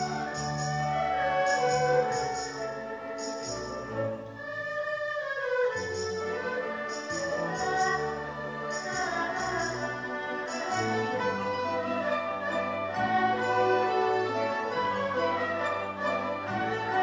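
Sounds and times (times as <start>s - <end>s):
traditional orchestra melody: 0.0s - 17.0s
bright metallic percussion strikes: 6.9s - 9.9s, 10.5s - 11.1s.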